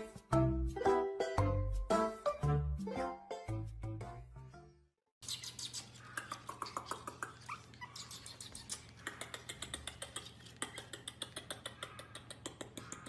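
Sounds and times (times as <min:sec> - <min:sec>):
puppies whimpering and squeaking: 0:05.3 - 0:10.8.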